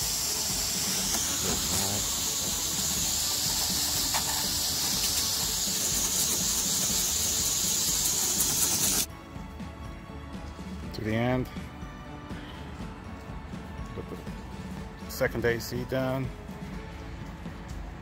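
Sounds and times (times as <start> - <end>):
hose nozzle spray hissing: 0.0 - 9.1.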